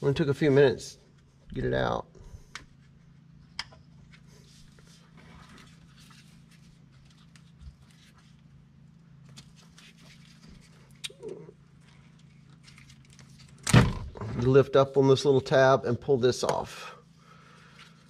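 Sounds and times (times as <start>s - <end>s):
steady low hum: 0.0s - 18.0s
plastic rustling: 11.7s - 13.6s.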